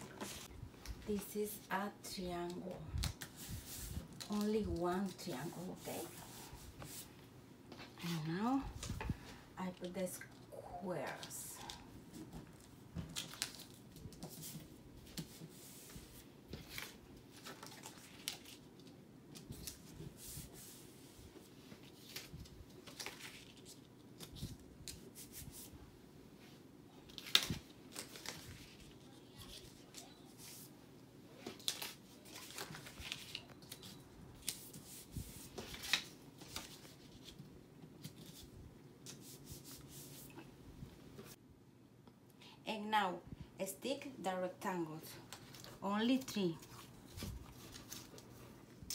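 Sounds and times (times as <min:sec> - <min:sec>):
paper rustling and crackling: 0:11.2 - 0:20.8, 0:21.6 - 0:25.3, 0:27.0 - 0:30.7, 0:31.4 - 0:38.5, 0:45.3 - 0:48.5.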